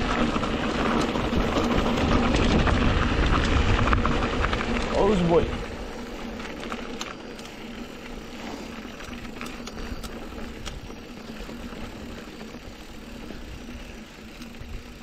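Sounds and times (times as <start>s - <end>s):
bike clicks and rattles: 0.0s - 15.0s
bike tyre and wind noise: 0.0s - 15.0s.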